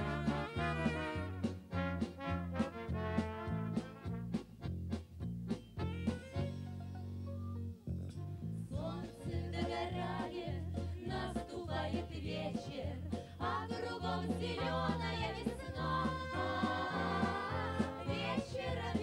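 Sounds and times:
band with stepping bass line: 0:00.0 - 0:06.9, 0:08.8 - 0:19.0
women singing together: 0:08.7 - 0:19.0.

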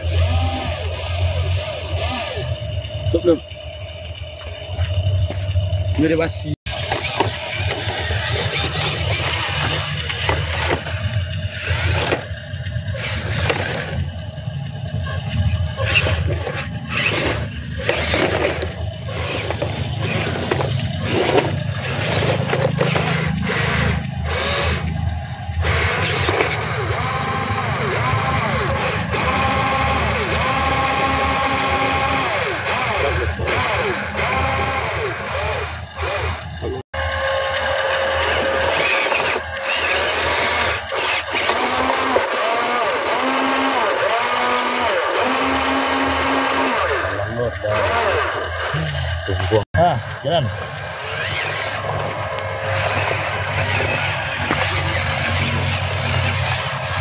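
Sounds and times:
toy truck motor and gears: 0:00.0 - 0:57.0
gravel crunching under wheels: 0:02.8 - 0:24.2, 0:50.6 - 0:57.0.

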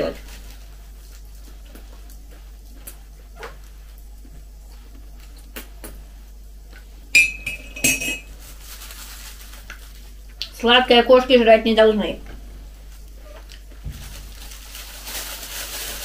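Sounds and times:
metal spoon clinking ceramic mug: 0:07.2 - 0:08.3.

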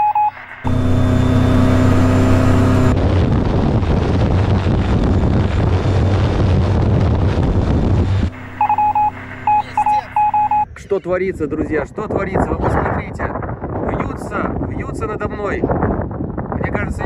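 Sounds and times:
variometer quick beeps: 0:00.0 - 0:02.9, 0:08.3 - 0:10.7
engine and propeller hum: 0:00.0 - 0:10.6
rush of wind and propeller: 0:00.0 - 0:10.6, 0:11.3 - 0:17.0.

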